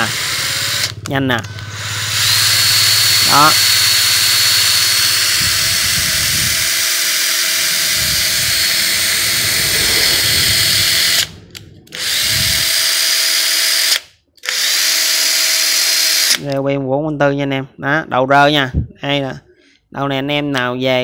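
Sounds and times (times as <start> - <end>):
power tool motor whine: 0.0 - 16.4.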